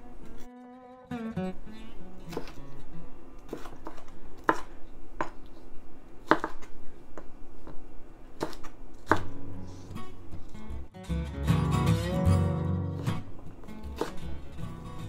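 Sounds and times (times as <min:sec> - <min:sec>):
knife chopping on wooden board: 0:02.3 - 0:02.6, 0:03.5 - 0:05.4, 0:06.2 - 0:07.8, 0:08.4 - 0:09.4, 0:13.8 - 0:14.3.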